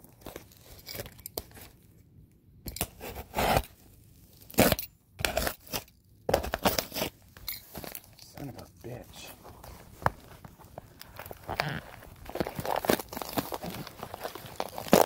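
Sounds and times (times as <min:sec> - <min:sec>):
handling noise: 0:06.3 - 0:15.0
cardboard box ripping: 0:11.2 - 0:15.0.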